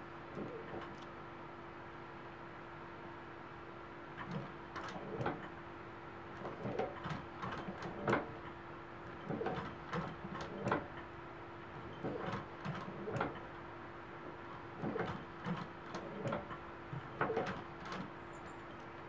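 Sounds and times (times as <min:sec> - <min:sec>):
sewing machine clunking stitches: 0:04.2 - 0:05.5, 0:06.4 - 0:08.4, 0:09.2 - 0:11.0, 0:11.8 - 0:13.5, 0:14.8 - 0:18.1.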